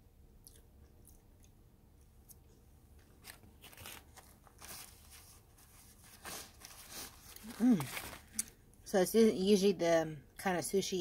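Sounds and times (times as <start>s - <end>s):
person chewing food: 0.3s - 5.0s.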